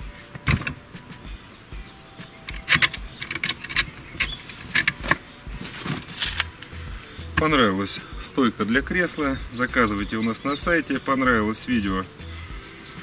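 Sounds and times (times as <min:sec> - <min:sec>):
metal stand clicking and clanking: 0:00.3 - 0:00.8, 0:02.5 - 0:06.7.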